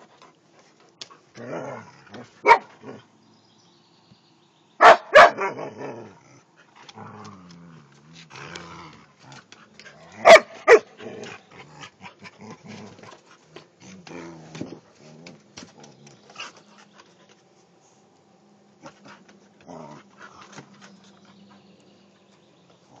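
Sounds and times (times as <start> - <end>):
dogs growling: 1.2 - 3.1, 5.4 - 17.4, 18.8 - 21.9
dogs barking: 2.4 - 3.0, 4.8 - 5.8, 10.2 - 12.0.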